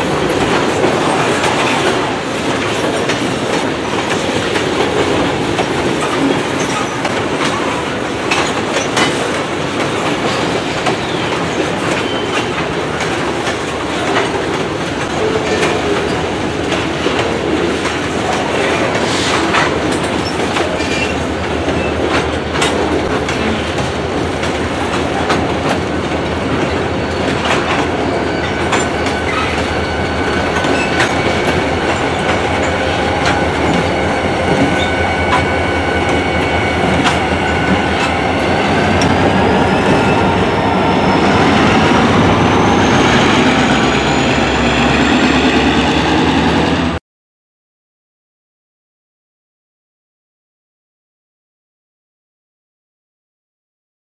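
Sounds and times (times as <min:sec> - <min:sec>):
train wheels clacking over rail joints: 0:00.0 - 0:40.7
low diesel locomotive drone: 0:00.0 - 0:47.0
wheel squeal: 0:10.5 - 0:12.5, 0:26.6 - 0:46.2.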